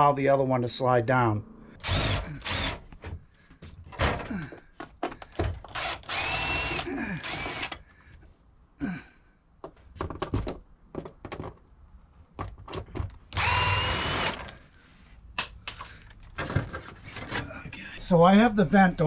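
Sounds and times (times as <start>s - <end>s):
power drill whine: 1.8s - 2.8s, 5.7s - 7.8s, 13.4s - 14.6s
clicks and knocks of parts: 2.8s - 6.1s, 12.3s - 13.4s, 15.4s - 17.5s.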